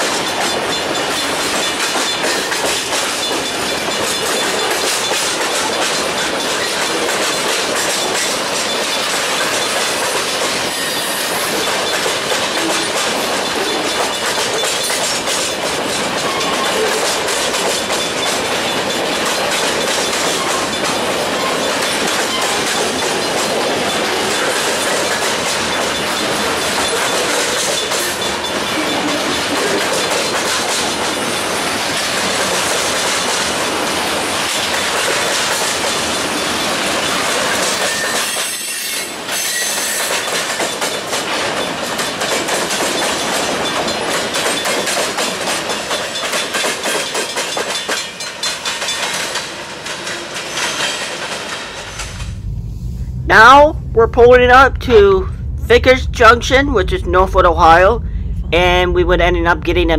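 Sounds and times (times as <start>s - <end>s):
wheels clicking over rail joints: 0.0s - 10.7s, 11.6s - 31.3s, 39.3s - 52.1s
steel wheels rumbling on rail: 0.0s - 58.6s.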